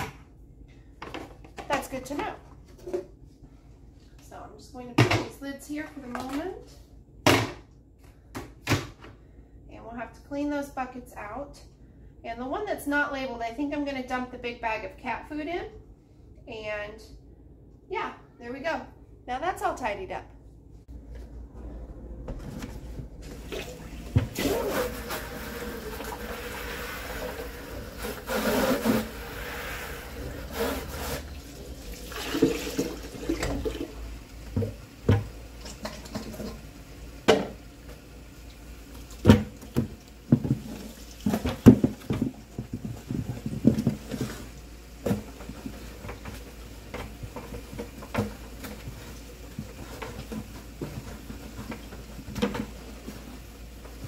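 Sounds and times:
bucket knocking against sink: 0:34.5 - 0:36.6, 0:37.2 - 0:37.6, 0:39.2 - 0:52.8
water sloshing in a plastic bucket: 0:38.9 - 0:54.0.

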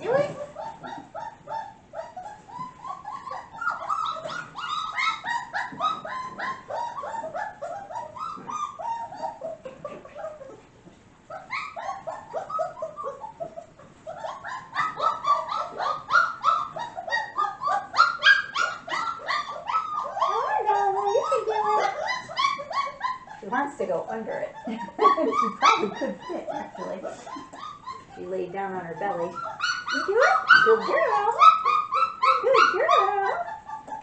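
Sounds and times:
puppy yipping and whining: 0:00.0 - 0:34.0.

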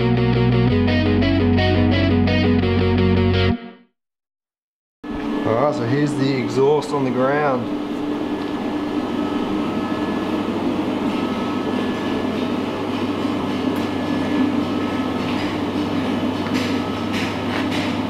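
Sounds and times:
mechanical drone with low hum: 0:05.0 - 0:18.0.

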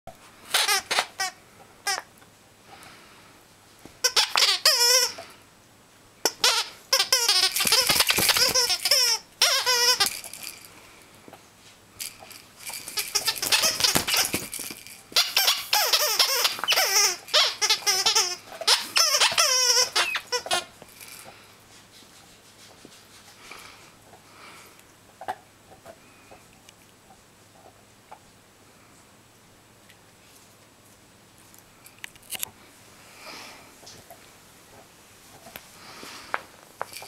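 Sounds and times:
squeaky toy squeaking: 0:00.5 - 0:02.1, 0:04.0 - 0:05.2, 0:06.2 - 0:10.5, 0:12.7 - 0:20.7.

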